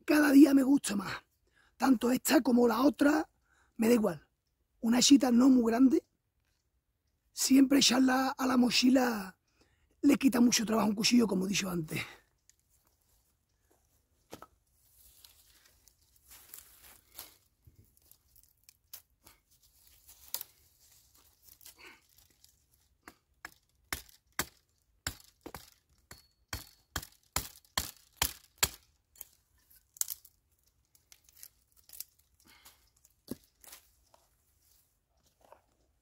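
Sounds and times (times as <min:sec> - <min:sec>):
rustling of wood and grass: 0:11.0 - 0:36.0
sticks snapping: 0:18.0 - 0:19.1, 0:20.2 - 0:20.6, 0:21.5 - 0:26.0, 0:26.6 - 0:33.9.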